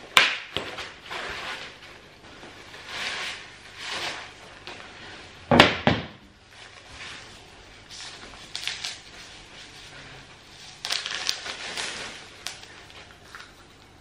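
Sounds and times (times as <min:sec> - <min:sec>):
loud thump: 0:05.5 - 0:06.2
packaging rustling and crinkling: 0:06.6 - 0:14.0.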